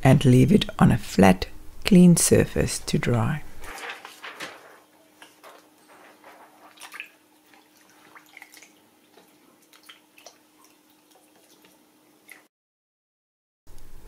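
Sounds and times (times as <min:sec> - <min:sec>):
water splashing and dripping: 0:05.2 - 0:12.5.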